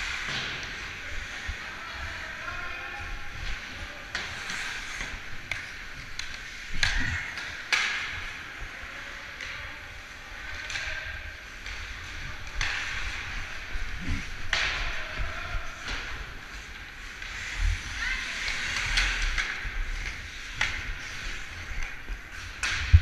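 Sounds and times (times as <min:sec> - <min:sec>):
skate blades scraping ice: 0:03.5 - 0:09.4, 0:16.1 - 0:22.9.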